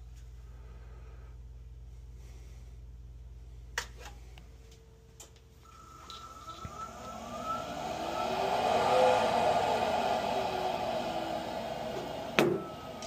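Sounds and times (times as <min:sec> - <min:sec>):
boiler blower whine: 0:05.2 - 0:13.0
low hum: 0:05.6 - 0:13.0.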